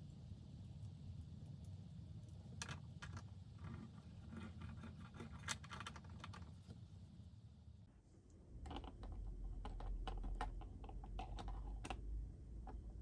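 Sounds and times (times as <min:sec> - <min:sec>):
plastic toy clicks and taps: 0:08.6 - 0:12.0.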